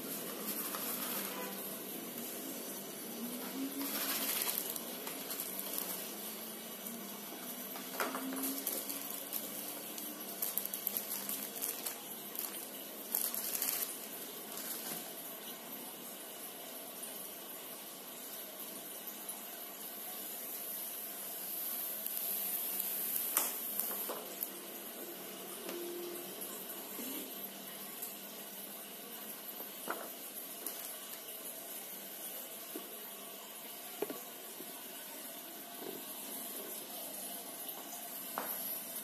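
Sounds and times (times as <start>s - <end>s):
steady hiss: 0.0s - 39.0s
plastic bag crinkling: 0.3s - 1.5s, 3.4s - 6.5s, 7.7s - 15.2s
cardboard rustling: 3.8s - 6.1s, 8.0s - 15.1s.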